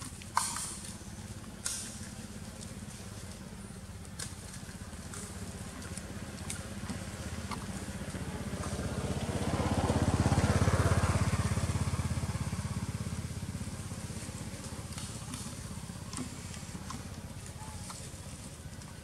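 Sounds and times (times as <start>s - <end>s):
vehicle engine passing by: 4.2s - 18.6s.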